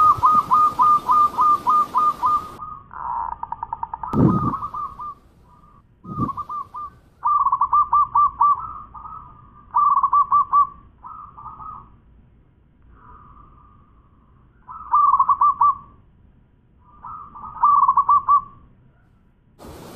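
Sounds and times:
dove cooing: 0.0s - 11.9s, 17.0s - 18.5s.

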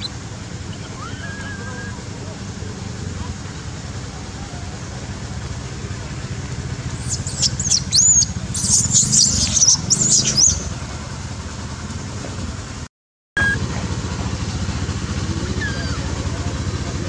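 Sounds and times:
infant monkey screaming: 0.0s - 2.0s, 7.0s - 10.7s, 15.4s - 16.3s
low engine drone: 0.0s - 17.0s.

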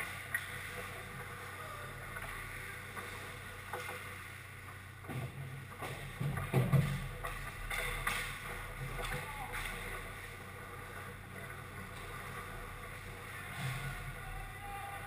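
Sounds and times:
hockey sticks knocking: 5.1s - 10.2s
skates scraping on ice: 6.0s - 14.6s.

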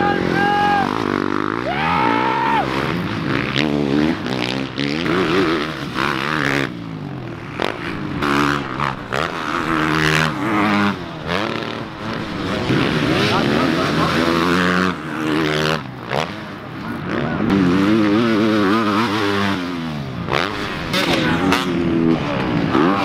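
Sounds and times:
dirt bike engines revving: 0.0s - 23.0s.

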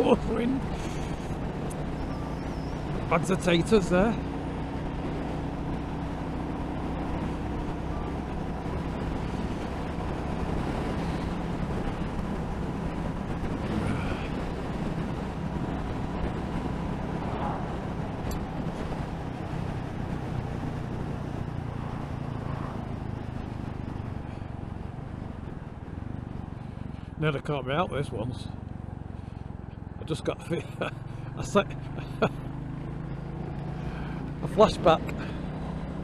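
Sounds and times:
motorcycle engine running: 0.0s - 27.2s, 28.3s - 36.0s
road noise: 0.0s - 36.0s
wind rush: 7.0s - 26.9s.

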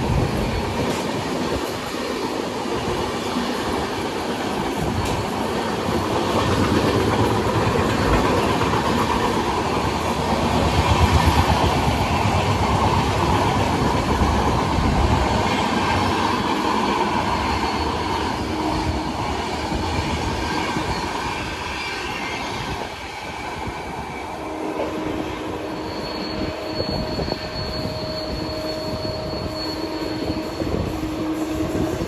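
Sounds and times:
train wheels rumbling on rails: 0.0s - 32.0s
wheels squealing on rail: 0.0s - 32.0s.

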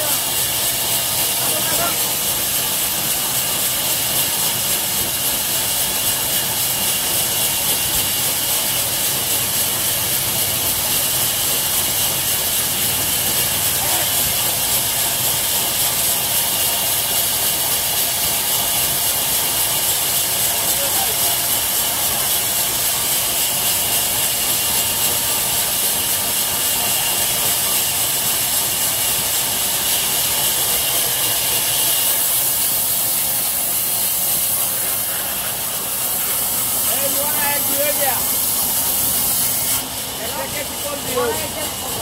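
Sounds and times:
band saw running: 0.0s - 42.0s.

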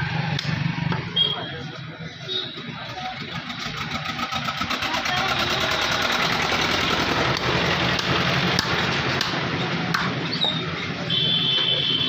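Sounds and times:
cleaver chopping meat on wood: 7.4s - 10.2s.

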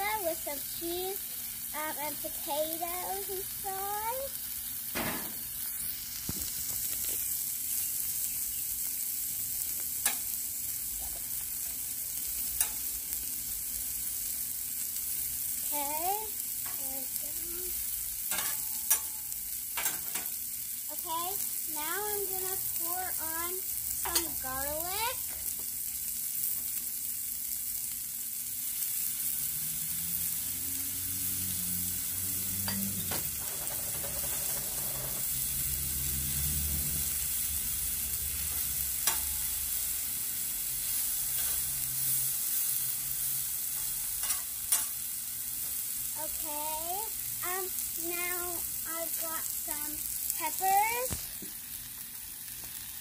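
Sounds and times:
food sizzling on griddle: 0.0s - 53.0s.

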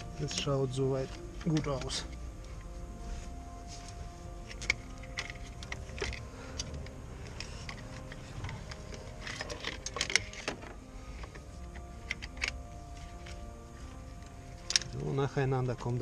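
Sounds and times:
plastic connectors clicking and rattling: 0.3s - 2.2s, 4.4s - 13.4s, 14.2s - 15.8s.

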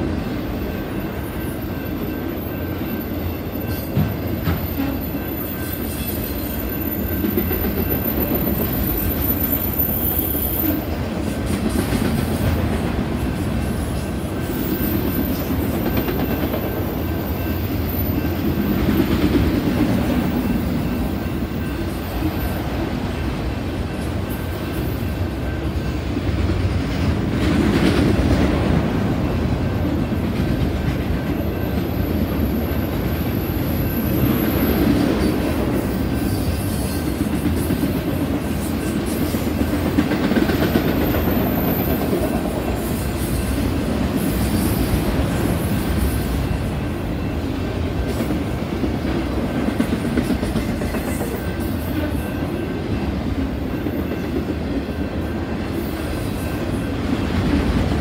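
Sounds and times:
freight train wheels rumbling: 0.0s - 58.0s.

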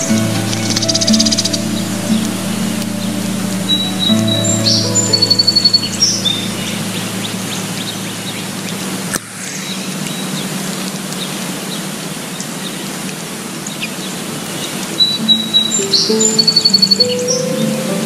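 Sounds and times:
background music: 0.0s - 7.9s, 15.0s - 18.0s
outdoor ambience hiss: 0.0s - 18.0s.

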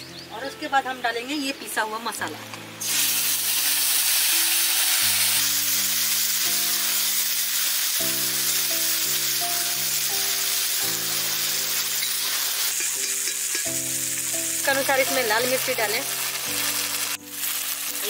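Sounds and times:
soft background music: 0.0s - 18.0s
paste sizzling in hot oil: 2.8s - 18.0s
metal spatula stirring: 11.1s - 13.9s.

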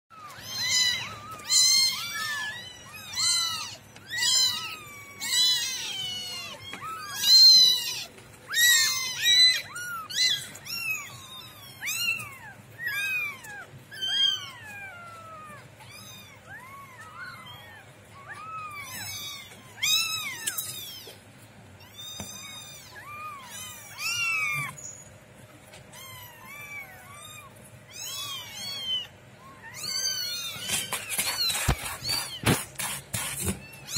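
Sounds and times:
kittens mewing: 0.1s - 24.8s, 25.8s - 33.9s.

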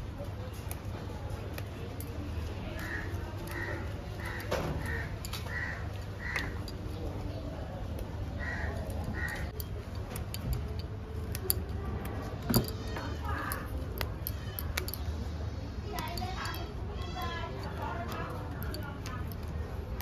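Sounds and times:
bird calling: 2.8s - 6.8s.

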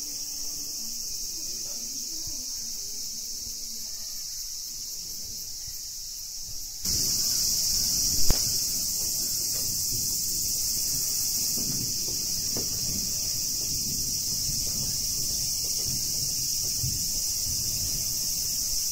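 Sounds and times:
insects shrilling: 0.0s - 18.9s
sharp knock: 6.9s - 10.4s.

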